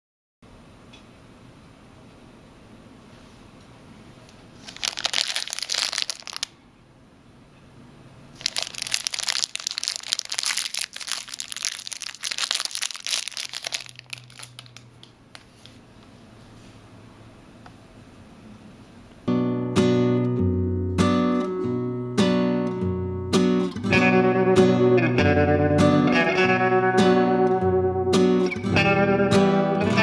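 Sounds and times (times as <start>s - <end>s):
plastic packaging crinkling: 4.6s - 6.6s, 8.4s - 15.4s.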